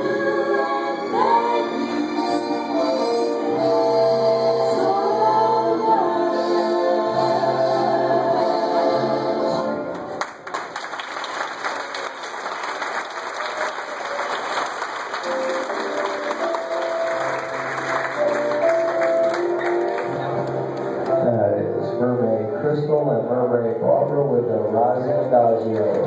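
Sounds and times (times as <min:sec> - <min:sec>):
music with singing: 0:00.0 - 0:10.0
audience applause: 0:10.2 - 0:21.1
slow melody: 0:15.2 - 0:24.4.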